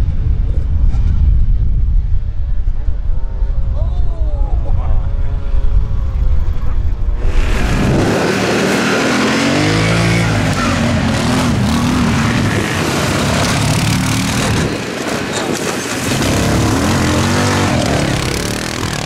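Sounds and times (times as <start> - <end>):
atv engines revving: 7.2 - 19.0.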